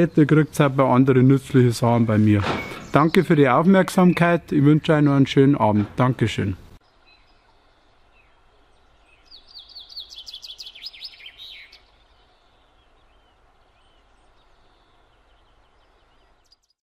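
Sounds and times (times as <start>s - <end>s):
background hiss: 0.0s - 16.6s
songbird singing: 0.0s - 16.8s
faint bird chirps: 6.8s - 16.8s.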